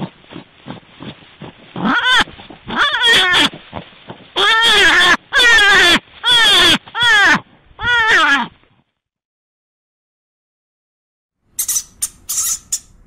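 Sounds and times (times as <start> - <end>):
rabbit squealing: 1.8 - 3.6, 4.4 - 8.5, 11.6 - 12.9.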